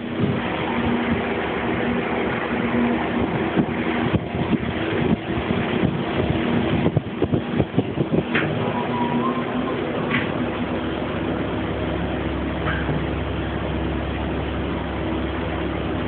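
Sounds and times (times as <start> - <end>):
machinery hum: 0.0 - 16.0.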